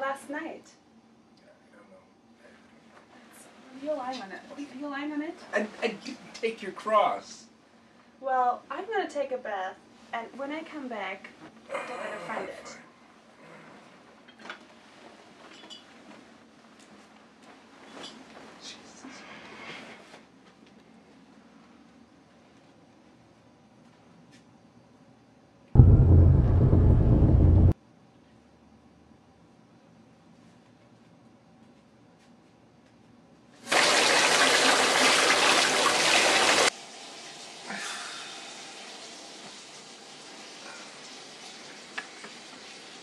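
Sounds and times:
water gushing from faucet into tub: 33.6s - 36.7s.

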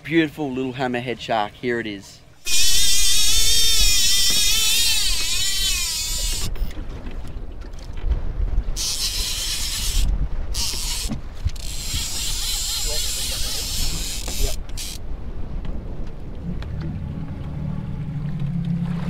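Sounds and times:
fishing reel drag screaming: 2.4s - 6.7s, 8.8s - 15.0s
wind on microphone: 2.5s - 19.0s.

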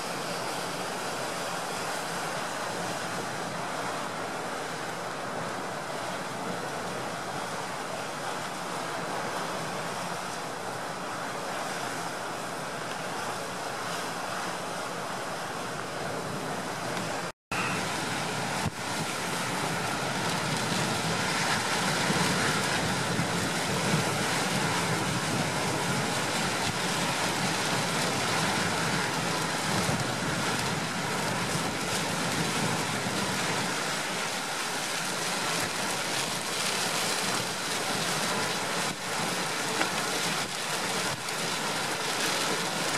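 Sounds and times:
storm wind: 12.5s - 42.9s.

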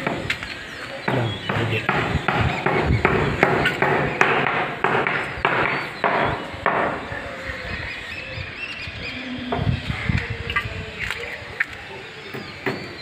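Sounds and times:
hard knocks: 1.1s - 7.0s.

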